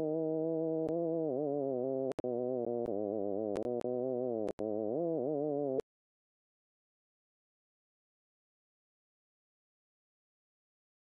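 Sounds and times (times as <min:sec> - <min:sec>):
synthesized buzzy tone: 0:00.0 - 0:05.8.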